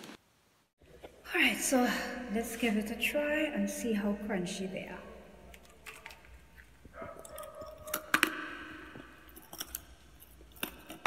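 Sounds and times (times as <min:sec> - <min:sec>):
chewing crunchy chickpeas: 0:05.6 - 0:11.0.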